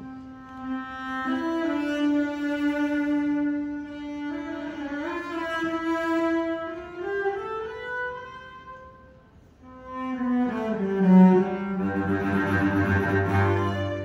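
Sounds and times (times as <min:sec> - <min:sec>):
orchestra strings holding long notes: 0:00.0 - 0:14.0.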